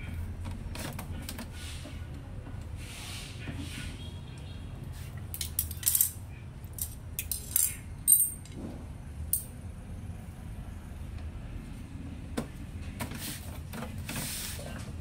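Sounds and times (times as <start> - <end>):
small metal objects clinking: 6.8 - 8.5.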